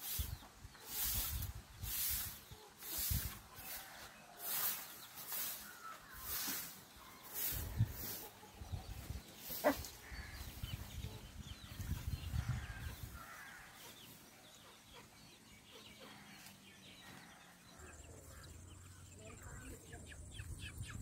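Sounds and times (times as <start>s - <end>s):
chick chirping: 4.4s - 21.0s.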